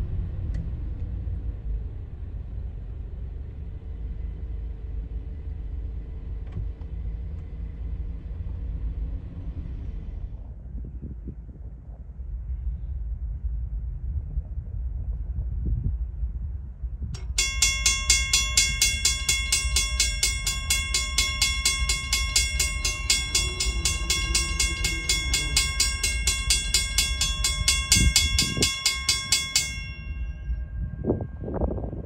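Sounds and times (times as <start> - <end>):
steady low rumble: 0.0 - 32.0
crossing warning bell ringing: 17.2 - 32.0.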